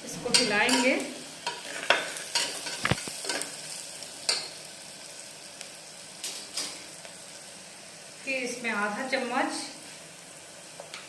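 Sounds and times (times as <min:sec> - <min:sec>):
frying sizzle: 0:00.0 - 0:11.0
metal spatula scraping a pot: 0:00.3 - 0:03.5.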